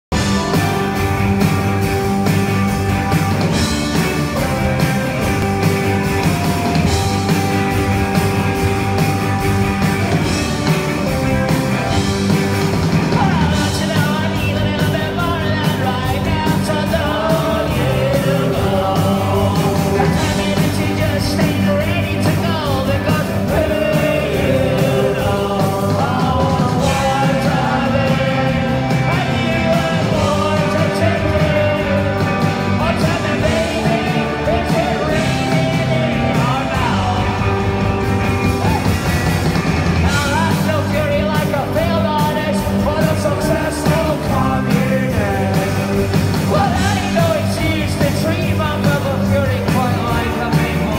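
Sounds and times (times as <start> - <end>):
rock band playing: 0.0 - 50.9
person singing: 12.9 - 39.1, 40.0 - 50.9.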